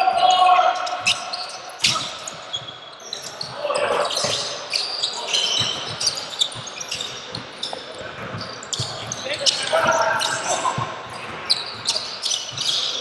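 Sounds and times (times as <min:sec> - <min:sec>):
sneaker squeaks: 0:00.0 - 0:13.0
basketball bouncing: 0:05.5 - 0:13.0.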